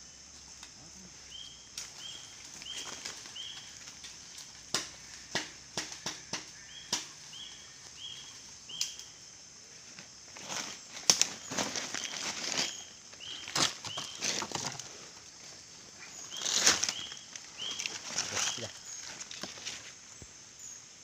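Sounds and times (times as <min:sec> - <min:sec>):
insect drone: 0:00.0 - 0:21.0
twigs snapping: 0:01.7 - 0:07.2, 0:08.7 - 0:09.1, 0:10.9 - 0:14.9, 0:16.3 - 0:19.9.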